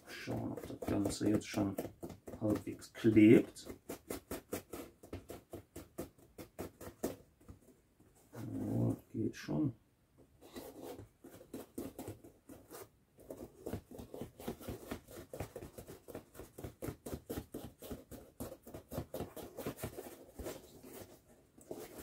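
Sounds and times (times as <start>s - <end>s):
foam helmet crackling and creaking: 0.0s - 9.3s.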